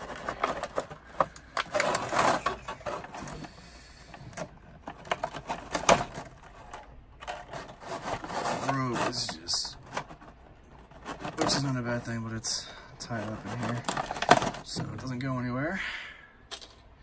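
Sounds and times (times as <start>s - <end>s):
plastic blister tray crinkling: 0.0s - 15.3s.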